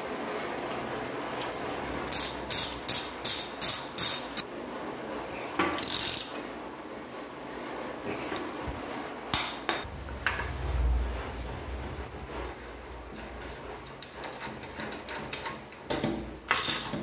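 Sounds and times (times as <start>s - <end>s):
ratchet wrench clicking: 2.1s - 4.4s, 5.8s - 6.4s, 16.5s - 17.0s.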